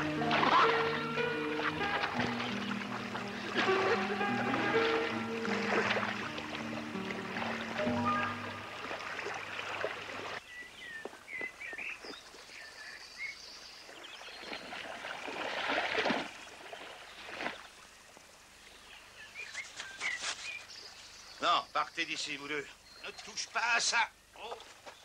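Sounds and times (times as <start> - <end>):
music: 0.0 - 9.3
water splashing: 0.0 - 12.6, 13.8 - 18.0
birds chirping: 0.0 - 14.9, 18.0 - 25.0.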